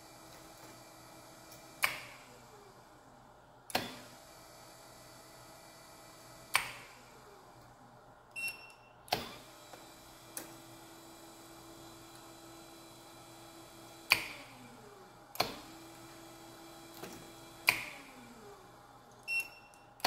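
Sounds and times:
electric motor humming: 0:09.4 - 0:19.1.

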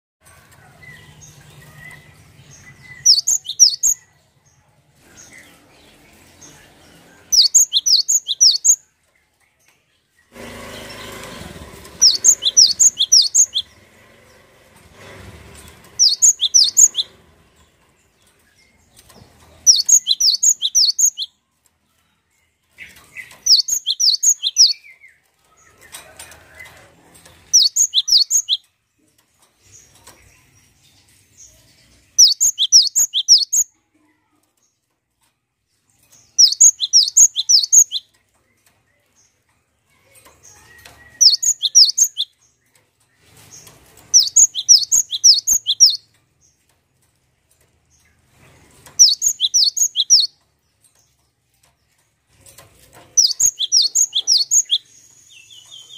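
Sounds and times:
bird singing high repeated notes: 0:02.9 - 0:04.0, 0:07.3 - 0:08.8, 0:12.0 - 0:13.7, 0:16.0 - 0:17.1, 0:19.7 - 0:21.3, 0:23.5 - 0:24.8, 0:27.5 - 0:28.6, 0:32.2 - 0:33.6, 0:36.4 - 0:38.0, 0:41.1 - 0:42.3, 0:44.2 - 0:46.0, 0:49.0 - 0:50.3, 0:53.2 - 0:55.9.

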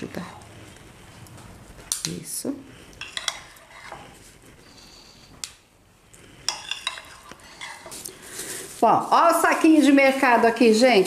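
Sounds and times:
spoon clinking against a dish: 0:03.0 - 0:03.6, 0:06.5 - 0:07.8.

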